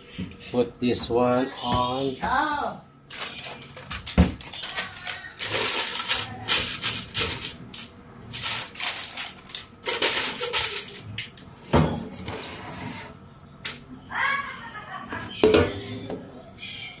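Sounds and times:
paper liner crinkling: 3.1s - 7.2s.

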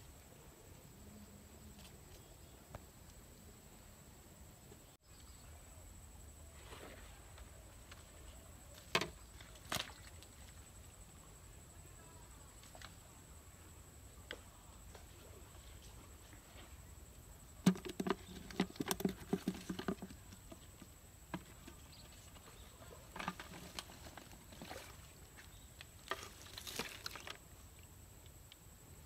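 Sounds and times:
rustling: 17.6s - 27.6s.

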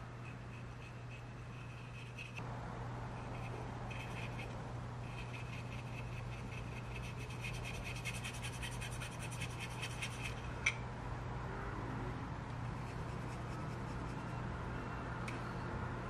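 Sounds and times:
paintbrush scrubbing plastic: 5.1s - 10.4s.

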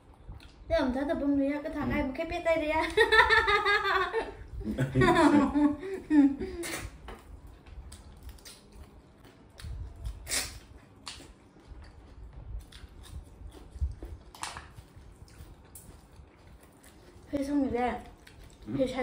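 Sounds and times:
chewing and mouth noises: 0.0s - 0.7s, 6.6s - 19.0s
sharp eating sounds: 6.5s - 19.0s.

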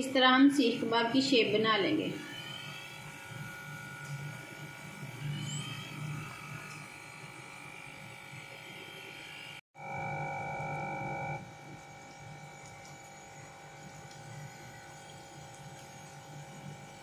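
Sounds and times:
electric motor hum with whine: 0.0s - 17.0s.

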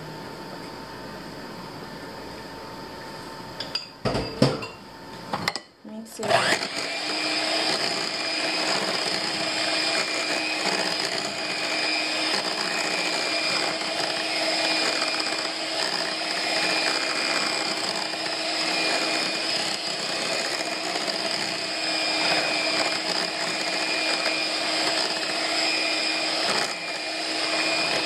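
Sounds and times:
electric hand mixer running: 6.2s - 28.0s.

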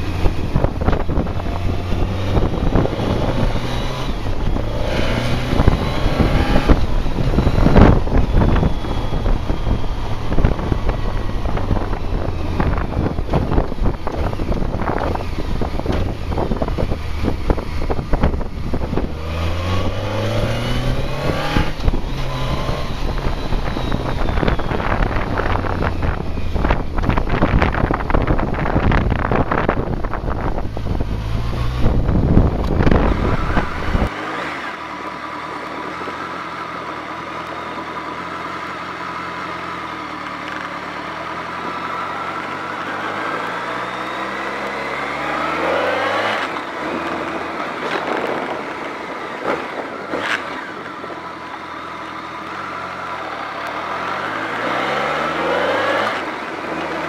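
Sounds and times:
wind buffeting microphone: 0.0s - 34.2s
motorcycle engine accelerating: 0.0s - 57.0s.

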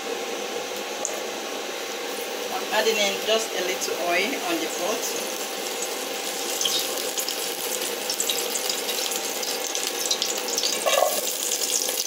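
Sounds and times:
oil sizzling in a pan: 1.8s - 12.0s.

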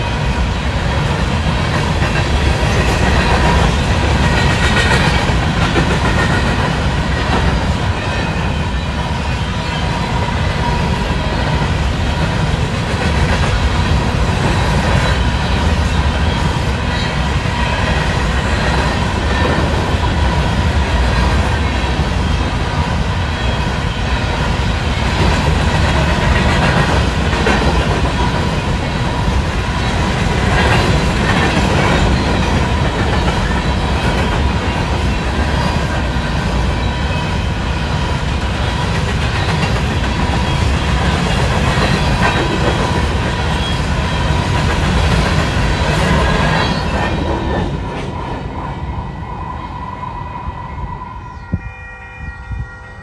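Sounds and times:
train cars rumbling past: 0.0s - 53.0s
wheels clacking over rail joints: 24.2s - 48.5s.

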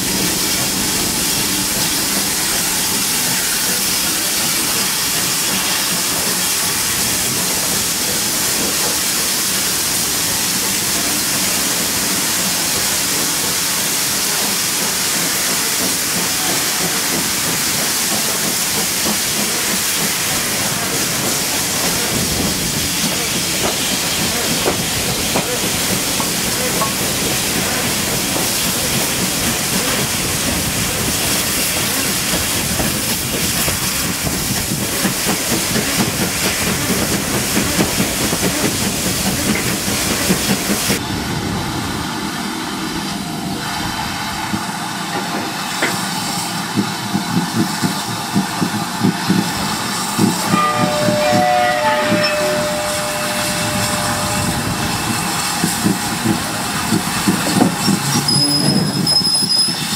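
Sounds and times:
steam train rushing and hissing: 0.0s - 59.9s
rhythmic train beat: 46.7s - 59.3s
thin steady squeal: 50.6s - 55.0s.

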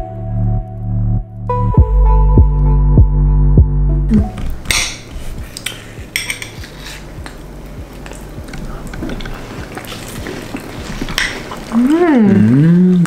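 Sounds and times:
spoons clinking on glass cups: 4.7s - 7.0s.

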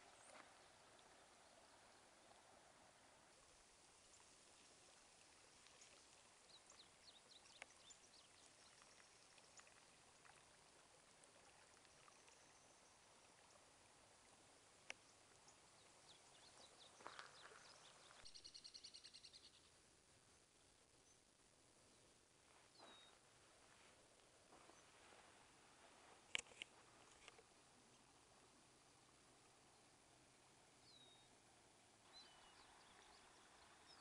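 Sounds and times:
water trickling over gravel: 0.0s - 18.4s.

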